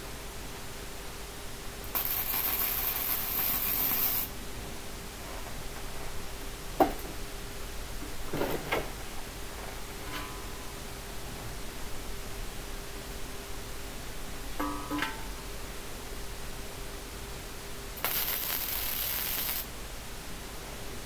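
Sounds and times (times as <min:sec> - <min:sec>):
faint steady hum: 0:00.0 - 0:21.0
welder arc crackling: 0:01.8 - 0:04.3, 0:18.0 - 0:19.7
metal knocks: 0:14.6 - 0:15.3.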